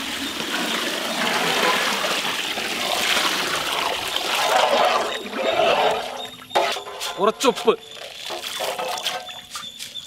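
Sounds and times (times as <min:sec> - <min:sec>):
broth pouring and splashing: 0:00.0 - 0:06.4, 0:08.0 - 0:09.5.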